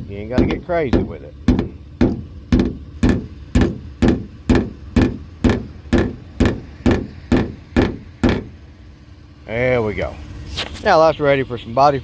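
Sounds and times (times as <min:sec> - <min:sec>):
mallet tapping on sheet metal: 0:00.4 - 0:08.5.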